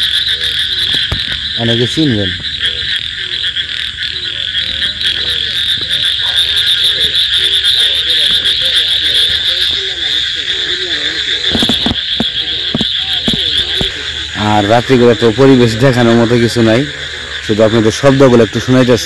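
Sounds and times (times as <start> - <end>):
frogs croaking: 0.0 - 19.0
soft thumps: 11.5 - 14.0.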